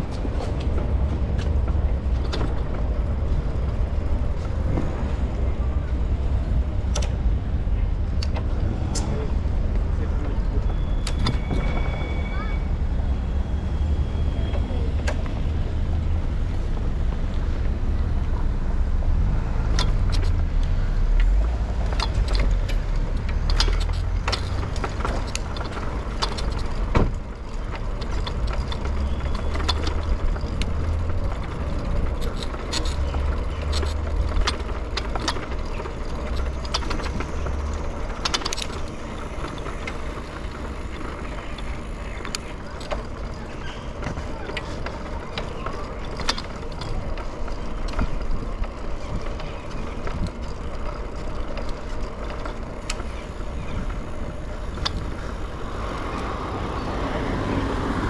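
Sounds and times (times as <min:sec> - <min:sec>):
bicycle clicks and rattles: 0:00.0 - 0:58.0.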